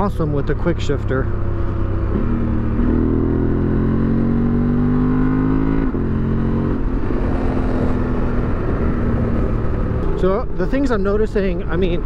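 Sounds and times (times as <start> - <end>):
motorcycle engine accelerating hard: 0.0 - 10.3.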